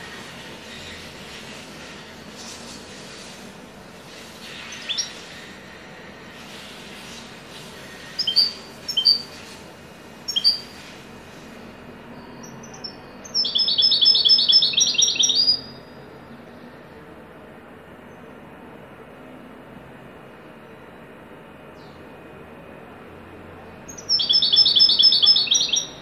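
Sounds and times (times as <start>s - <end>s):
bird chirping: 4.5s - 5.4s, 8.0s - 9.4s, 10.2s - 10.9s, 12.1s - 15.9s, 23.9s - 26.0s
bird fast trill: 4.5s - 5.5s, 7.9s - 9.4s, 10.2s - 10.9s, 12.2s - 15.9s, 23.9s - 26.0s.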